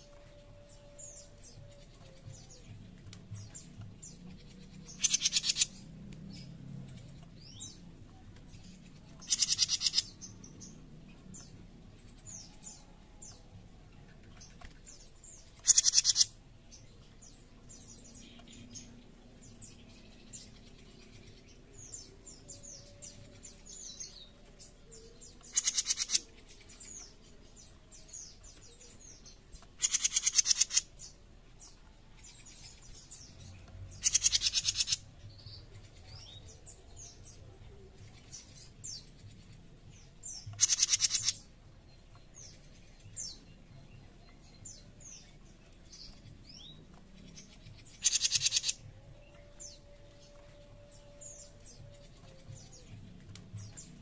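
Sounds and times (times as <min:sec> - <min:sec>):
bird harsh rapid rattling calls: 0:05.0 - 0:05.7, 0:09.2 - 0:10.1, 0:15.6 - 0:16.3, 0:25.5 - 0:26.2, 0:29.8 - 0:30.9, 0:34.0 - 0:35.0, 0:40.6 - 0:41.4, 0:48.0 - 0:48.8
faint bird chirps: 0:40.5 - 0:41.4.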